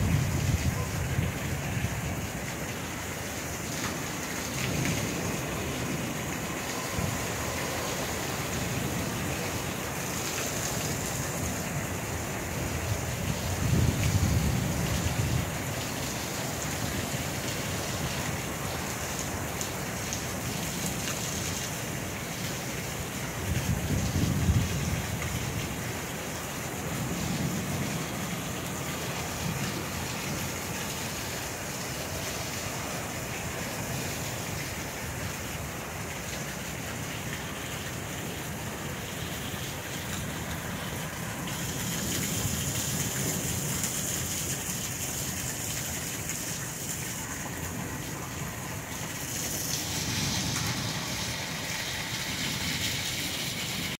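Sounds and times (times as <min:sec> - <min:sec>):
thunder rumbling: 0:00.0 - 0:02.4, 0:04.5 - 0:10.4, 0:11.4 - 0:18.7, 0:23.4 - 0:35.9, 0:47.5 - 0:54.0
steady rain: 0:00.0 - 0:54.0
wind: 0:00.0 - 0:54.0.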